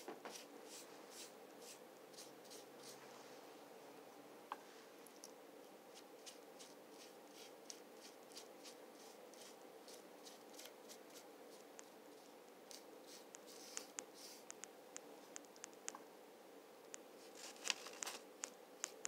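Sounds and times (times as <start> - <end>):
paintbrush dabbing strokes: 0.0 - 3.4, 5.9 - 14.6.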